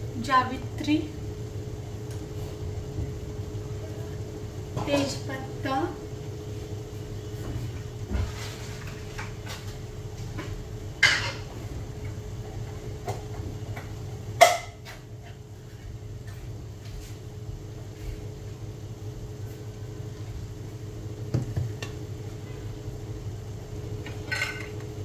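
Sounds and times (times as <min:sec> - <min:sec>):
steady low hum: 0:00.0 - 0:25.0
metal utensils clinking on a pot: 0:24.1 - 0:24.8.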